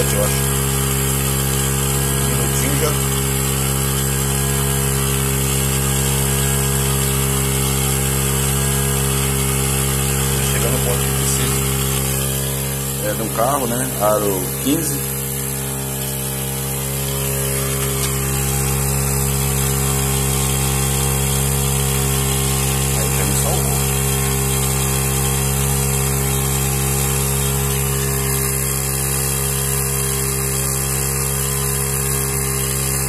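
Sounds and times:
tyre compressor humming: 0.0 - 33.0.

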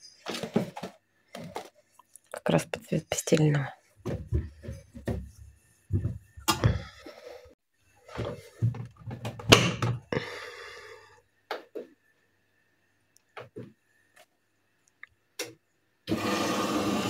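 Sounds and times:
bedding thumping and rustling: 4.0 - 6.9.

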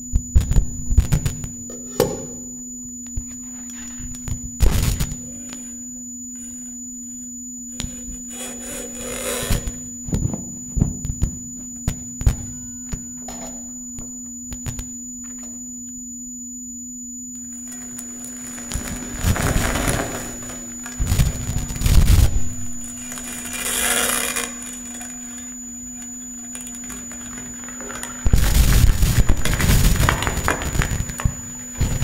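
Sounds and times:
low sine tone: 0.0 - 32.0.

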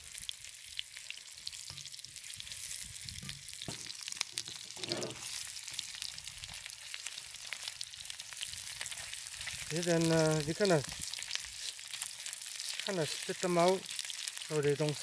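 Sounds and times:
beef sizzling in a wok: 0.0 - 15.0
spatula scraping a pan: 4.4 - 5.6.

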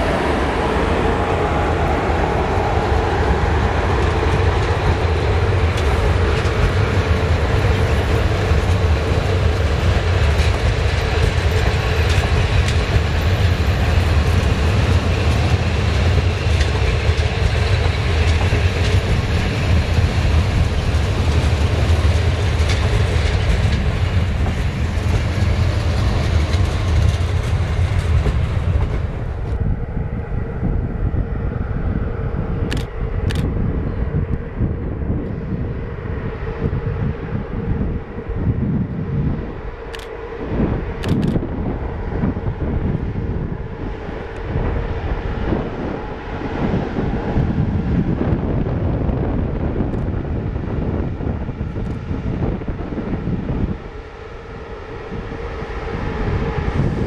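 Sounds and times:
train coaches rumbling past: 0.0 - 57.0
train wheel clacks: 2.9 - 29.6.

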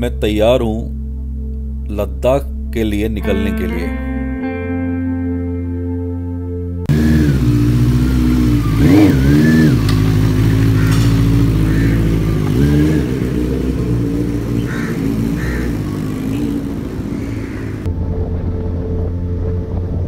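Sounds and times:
motorcycle engine revving: 6.9 - 17.9.

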